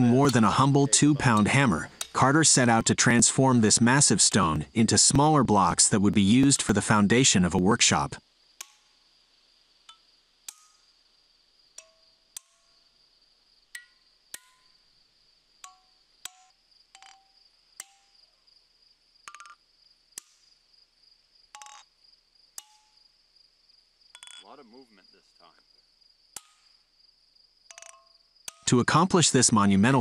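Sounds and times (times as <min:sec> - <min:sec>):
hammer striking steel wedges: 0:00.0 - 0:02.4, 0:08.6 - 0:08.9, 0:09.9 - 0:10.9, 0:15.6 - 0:18.2, 0:22.6 - 0:23.0, 0:26.4 - 0:26.8
high insect trill: 0:00.0 - 0:30.0.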